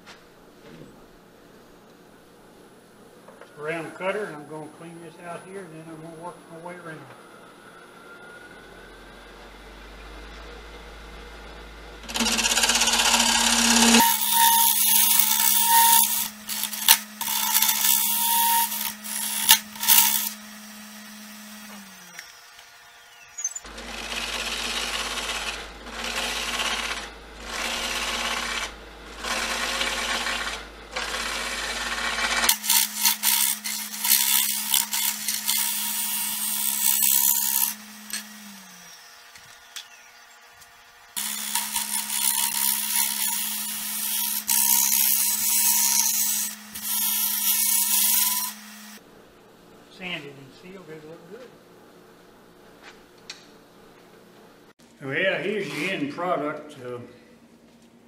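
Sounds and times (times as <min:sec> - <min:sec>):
wood lathe humming: 0:07.0 - 0:49.0
cutter hissing on spinning wood: 0:11.9 - 0:22.7, 0:23.7 - 0:39.4.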